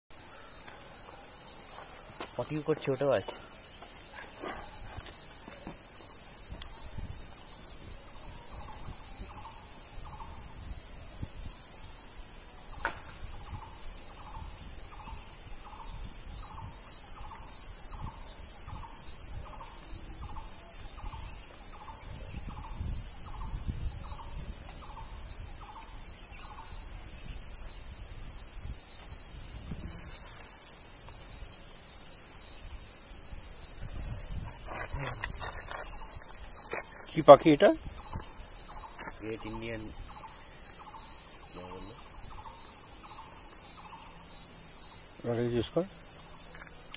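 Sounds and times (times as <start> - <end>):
shrill insect chorus: 0.2 - 46.9.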